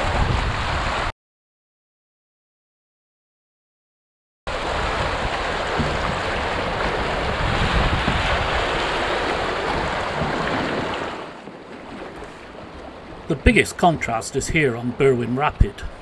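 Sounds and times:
whitewater rushing and splashing: 0:04.5 - 0:16.0.

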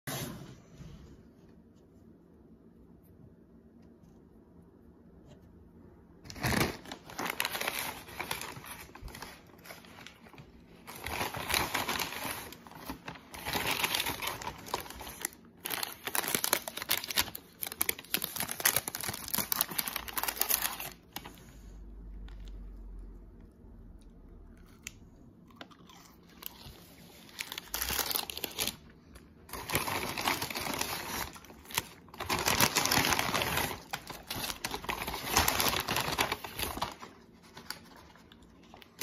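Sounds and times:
paper bag and wrappers crinkling: 0:06.2 - 0:21.7, 0:26.2 - 0:39.0.

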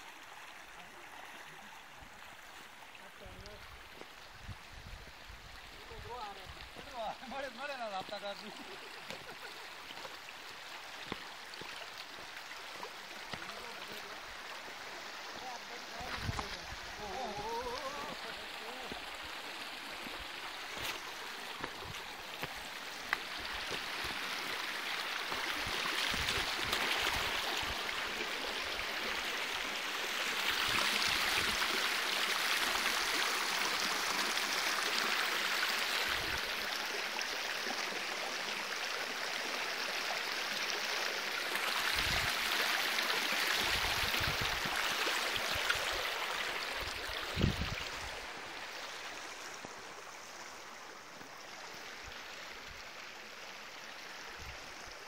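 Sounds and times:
water running over stones: 0:00.0 - 0:55.0.

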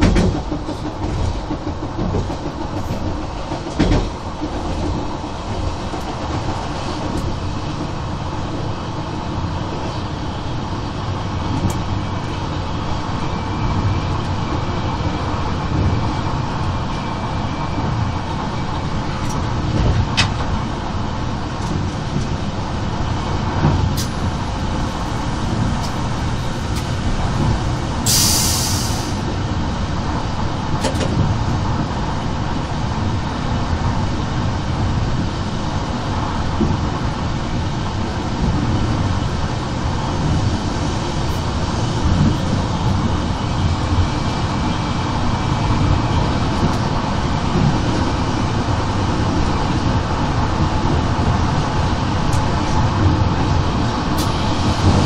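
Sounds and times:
wheels rumbling on rail: 0:00.0 - 0:55.0
brief hiss: 0:28.1 - 0:29.2.

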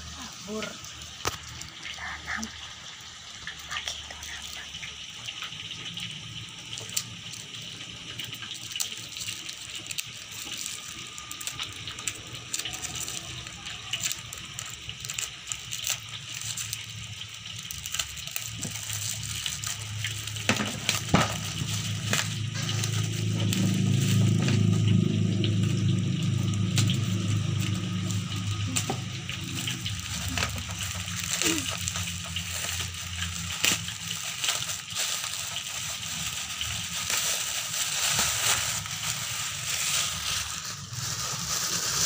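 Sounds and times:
packing tape crinkling: 0:06.6 - 0:42.0
low hum: 0:19.8 - 0:34.2.

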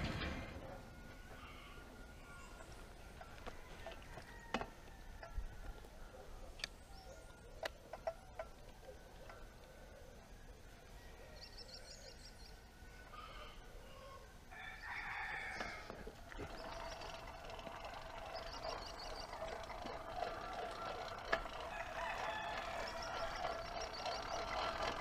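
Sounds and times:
rooster crowing: 0:00.6 - 0:05.7, 0:12.9 - 0:25.0.

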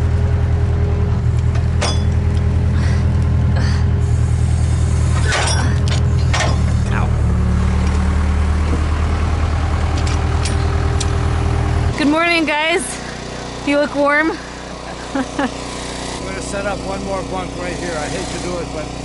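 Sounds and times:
diesel engine idling: 0:00.0 - 0:19.0
metal knocks and clanks: 0:01.5 - 0:02.3, 0:05.2 - 0:07.1.

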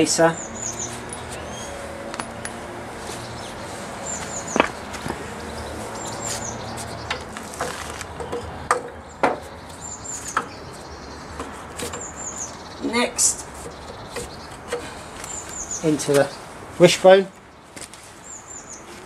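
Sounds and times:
small birds chirping: 0:00.0 - 0:19.0
metal clicks and knocks: 0:07.0 - 0:09.4.

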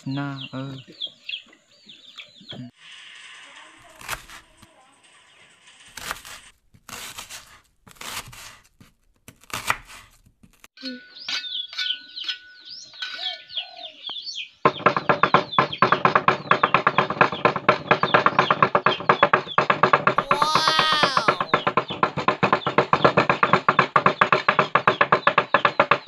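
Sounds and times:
birds chirping: 0:00.0 - 0:03.6, 0:04.7 - 0:05.8, 0:10.8 - 0:26.0
knife slicing onion on board: 0:04.0 - 0:04.4, 0:06.0 - 0:10.7.

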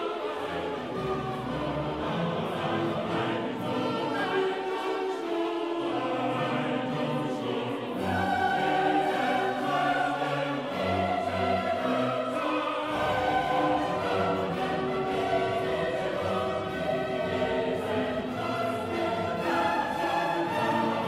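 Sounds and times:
choir singing: 0:00.0 - 0:21.0
orchestra playing: 0:00.0 - 0:21.0.

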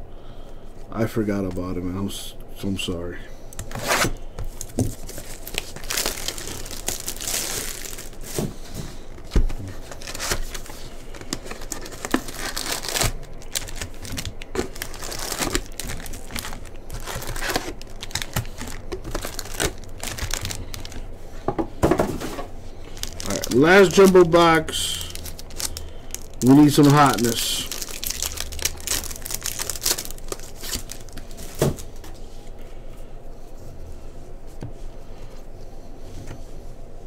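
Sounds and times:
packaging tearing and crinkling: 0:03.6 - 0:08.5, 0:09.2 - 0:21.0, 0:22.9 - 0:31.9.

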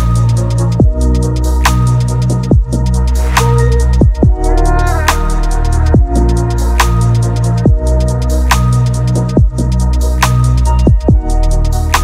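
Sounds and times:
electronic music with heavy bass: 0:00.0 - 0:12.0
deep falling kick drum: 0:02.5 - 0:02.8, 0:04.0 - 0:04.5, 0:05.8 - 0:06.3, 0:07.7 - 0:07.9.

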